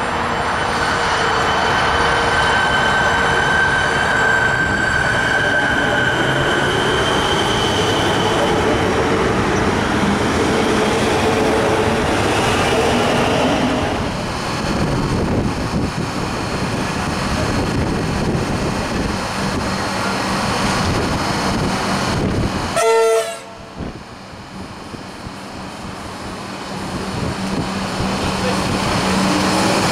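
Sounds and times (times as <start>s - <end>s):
electric train whining: 0.0s - 29.9s
standing train humming: 0.0s - 29.9s
train horn blast: 22.7s - 23.8s.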